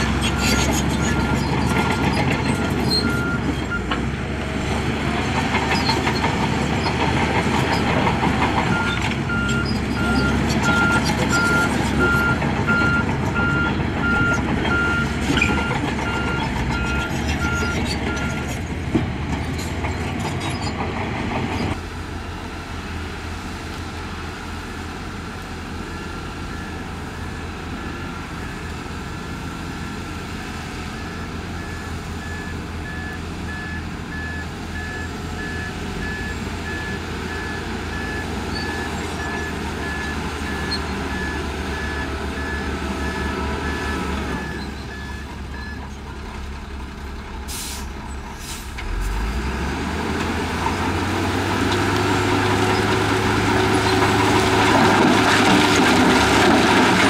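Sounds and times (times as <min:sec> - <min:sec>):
heavy machine diesel engines: 0:00.0 - 0:57.0
reversing alarm beeping: 0:08.7 - 0:18.4, 0:29.8 - 0:45.8.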